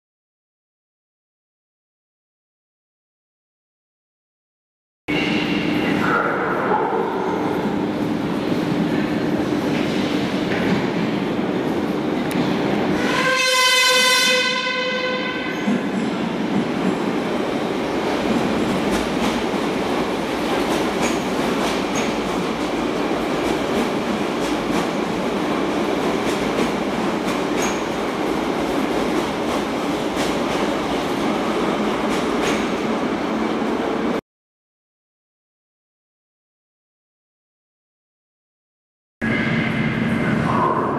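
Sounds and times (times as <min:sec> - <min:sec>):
train rumbling: 0:05.1 - 0:34.2, 0:39.2 - 0:40.9
train horn: 0:12.9 - 0:15.7.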